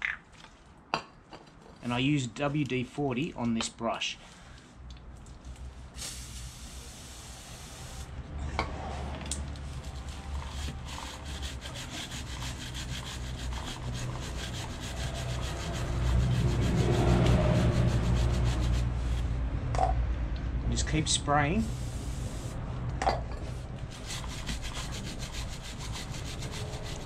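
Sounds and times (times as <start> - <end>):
chain brush scrubbing a chain: 9.6 - 19.4, 23.8 - 27.0.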